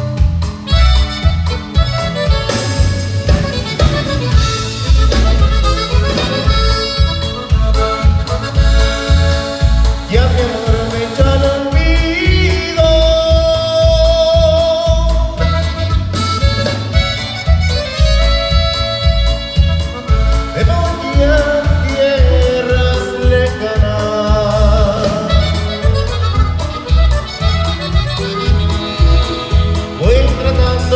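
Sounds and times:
bass: 0.0 - 30.9
button accordion: 0.0 - 30.9
drum beat: 0.0 - 30.9
guitar: 0.0 - 30.9
saxophone: 0.6 - 11.6, 15.3 - 21.6, 24.8 - 30.9.

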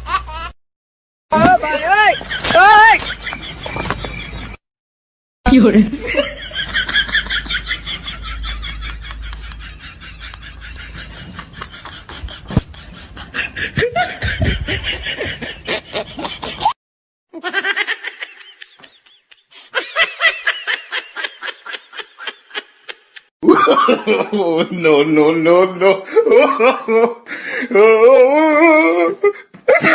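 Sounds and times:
person laughing: 5.7 - 16.8, 17.4 - 24.6, 25.9 - 29.9.

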